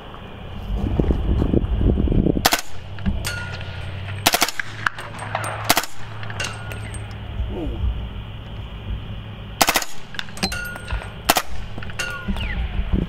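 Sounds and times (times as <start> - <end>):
wind rumble on microphone: 0.0 - 9.2, 10.0 - 13.0
suppressed rifle shots: 2.4 - 7.0, 9.6 - 12.8.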